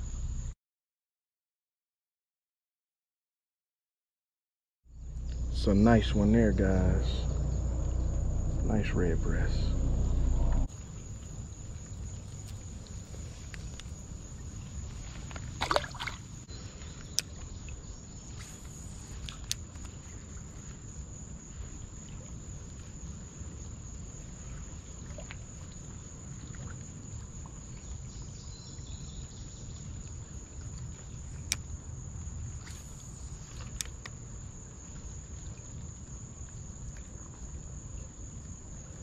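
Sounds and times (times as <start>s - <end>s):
low outdoor rumble: 0.0s - 0.5s, 4.9s - 15.6s
high-pitched insect drone: 5.0s - 10.7s
brief splash: 15.3s - 16.3s.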